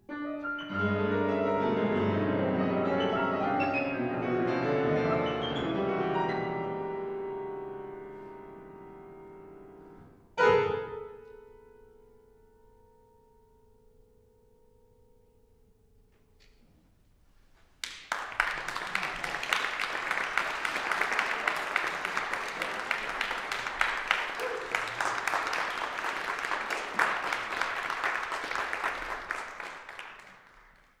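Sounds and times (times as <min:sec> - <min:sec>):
audience applauding: 0:17.8 - 0:31.0.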